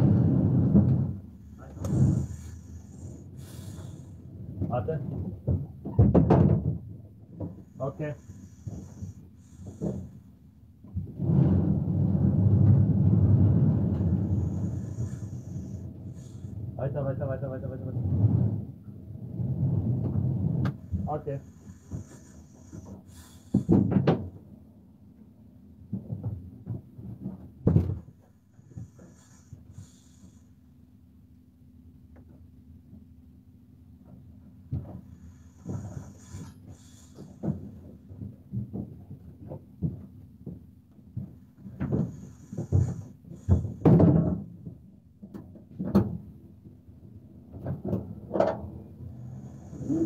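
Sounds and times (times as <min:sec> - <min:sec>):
faint steady hum: 0:00.0 - 0:50.0
dull knocks and bumps: 0:04.6 - 0:07.8, 0:25.9 - 0:28.2, 0:34.7 - 0:46.3.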